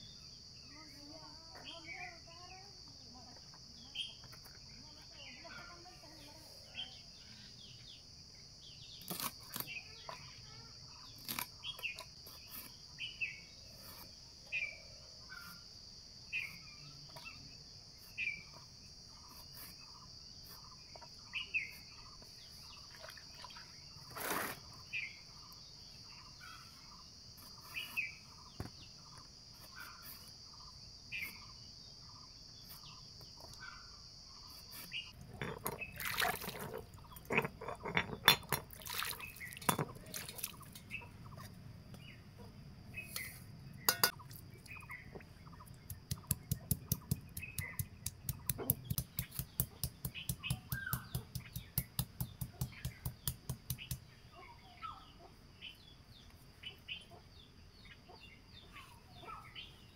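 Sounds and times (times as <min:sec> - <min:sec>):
stone grinding wet paste: 0:34.9 - 0:40.4.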